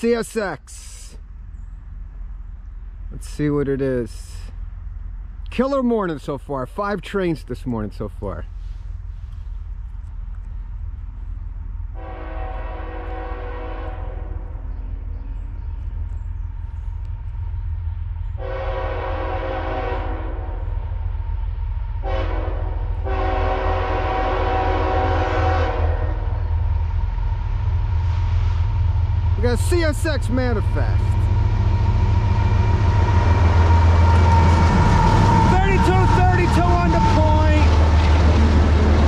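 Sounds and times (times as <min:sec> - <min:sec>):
low rumble of train: 0:00.0 - 0:39.0
locomotive air horn blasts: 0:11.9 - 0:14.6, 0:18.4 - 0:20.6, 0:22.0 - 0:26.4, 0:32.6 - 0:37.8.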